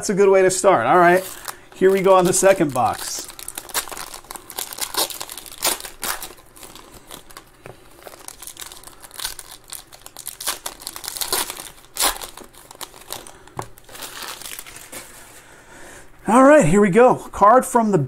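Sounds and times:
foil wrapper crinkling and tearing: 0.9 - 15.3.

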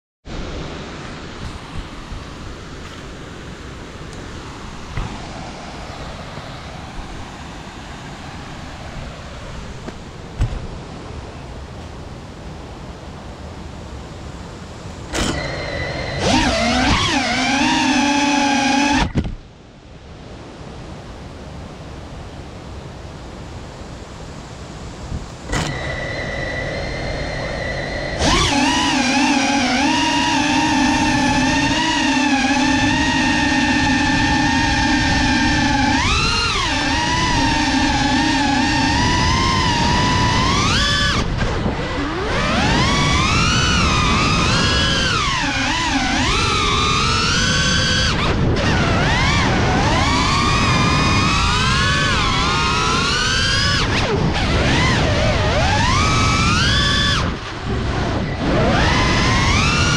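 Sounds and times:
wind rushing on microphone: 0.3 - 59.9
drone motors whining: 3.8 - 10.9, 13.9 - 19.4, 25.1 - 59.9
motor cut-off click: 25.5 - 26.6, 27.6 - 41.5.

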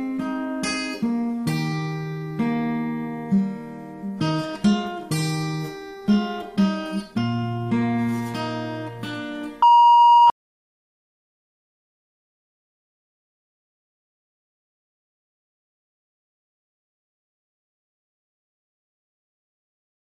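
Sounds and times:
acoustic guitar music: 0.0 - 9.6
loud electronic beep: 9.6 - 10.3.

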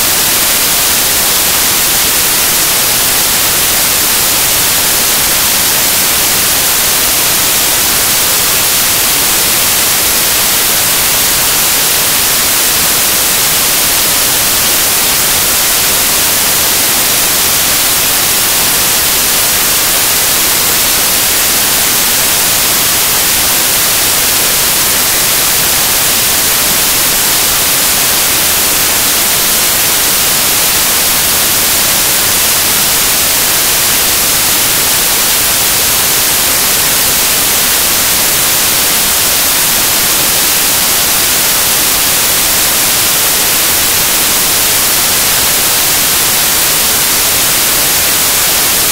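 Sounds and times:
loud static hiss: 0.0 - 48.9.

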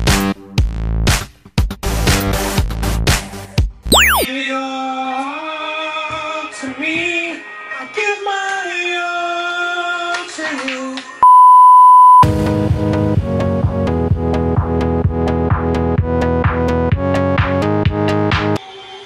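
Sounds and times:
test-tone beep: 3.9 - 4.3.

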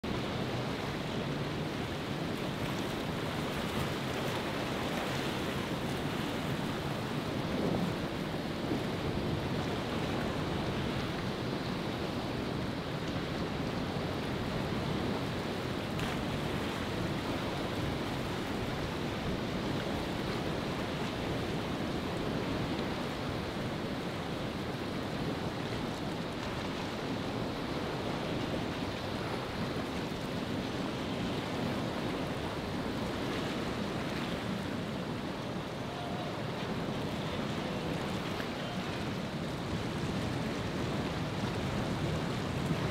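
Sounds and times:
wind: 0.0 - 42.9
breaking surf: 25.6 - 42.9.

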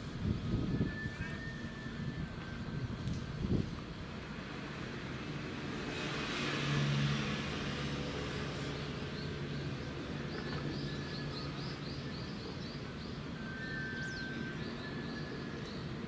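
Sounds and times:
falling whistle: 0.6 - 3.0, 13.4 - 15.6.

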